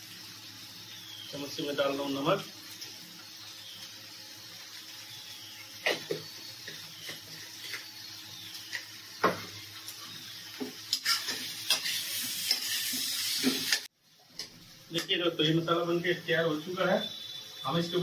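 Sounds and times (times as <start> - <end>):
potatoes sizzling in oil: 0.0 - 18.0
metal spatula scraping a pan: 10.9 - 13.9.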